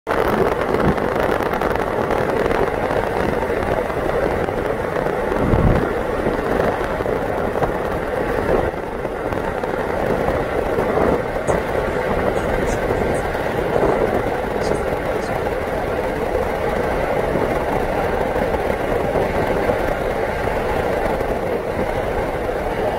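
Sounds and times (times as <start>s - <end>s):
rushing noise of moving vehicle: 0.1s - 22.9s.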